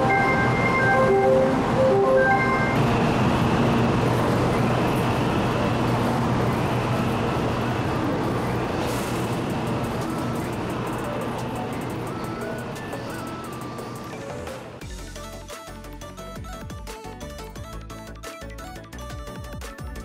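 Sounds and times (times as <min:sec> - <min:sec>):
train rushing noise and hum: 0:00.0 - 0:14.9.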